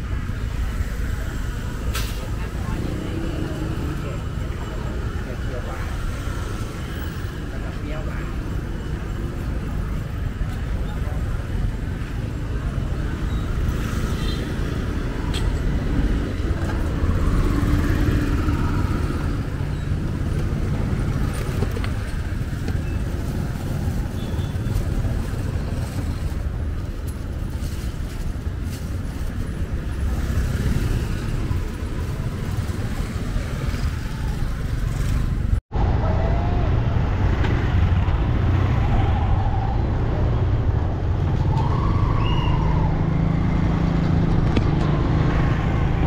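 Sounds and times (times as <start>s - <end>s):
motorbikes: 0.0s - 46.0s
road traffic rumble: 0.0s - 46.0s.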